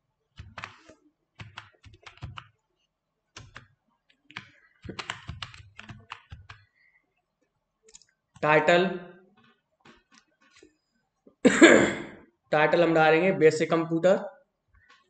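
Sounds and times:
typing on computer keyboard: 0.4 - 2.6, 3.4 - 6.7.

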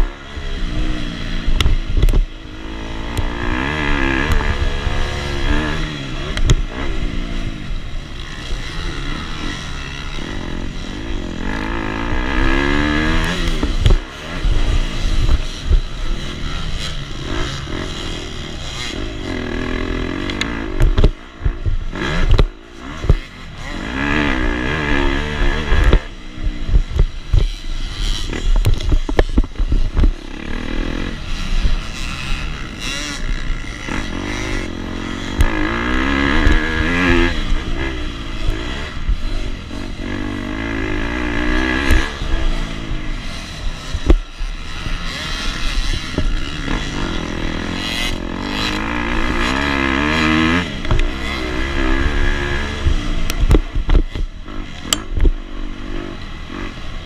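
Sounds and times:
dirt bike engine revving: 0.0 - 57.0
sharp knocks and clatter: 20.1 - 23.4, 25.4 - 30.2.

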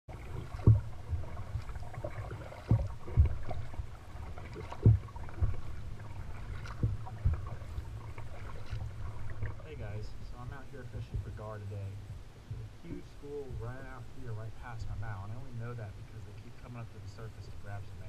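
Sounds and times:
paddle stroke thumps: 0.1 - 9.6
low steady rumble: 0.1 - 18.0.

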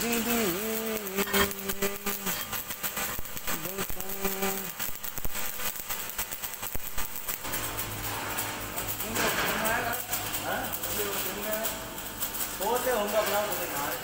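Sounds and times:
arc welding crackling: 0.0 - 14.0.

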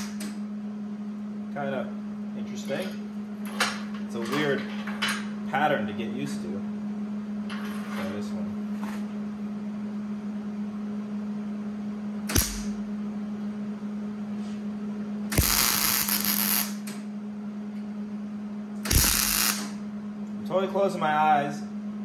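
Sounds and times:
welding arc noise: 0.0 - 0.4, 12.2 - 12.8, 15.3 - 17.0, 18.8 - 19.8
steady low hum: 0.0 - 22.0
welder click: 12.3 - 12.7, 18.8 - 19.7.

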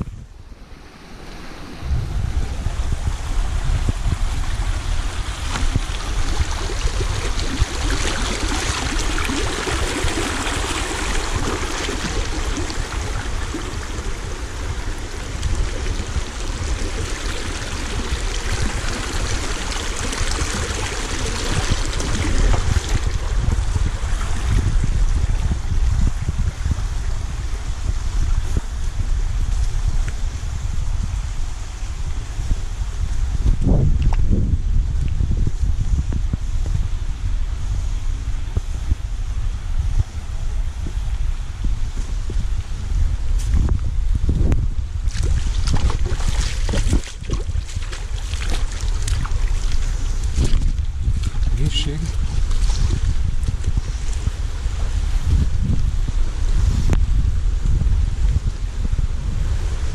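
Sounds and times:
wind rumble on microphone: 0.0 - 59.9
stream flowing over stones: 2.5 - 25.7, 44.5 - 55.4.

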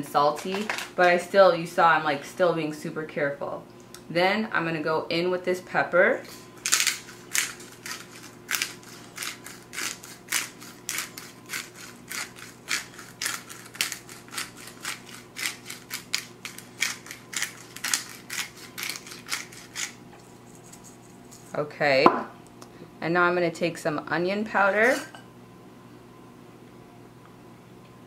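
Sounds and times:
pepper mill grinding clicks: 6.6 - 20.0.

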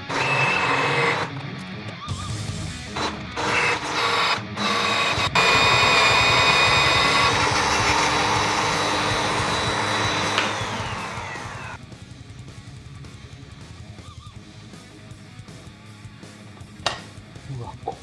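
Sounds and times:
magnetic drill motor whine: 0.0 - 1.3, 3.0 - 11.8.

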